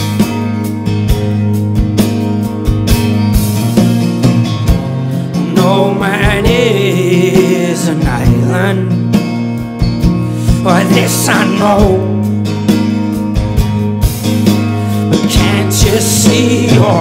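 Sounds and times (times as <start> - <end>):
drums keeping a steady beat: 0.0 - 17.0
electric bass: 0.0 - 17.0
strummed acoustic guitar: 0.0 - 17.0
wavering wordless vocal: 5.4 - 9.1, 10.4 - 12.4, 15.1 - 17.0.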